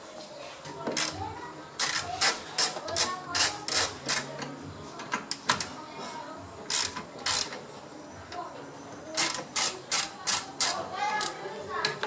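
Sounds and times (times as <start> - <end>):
ratchet wrench clicking: 1.8 - 4.3, 6.7 - 7.6, 9.2 - 11.4.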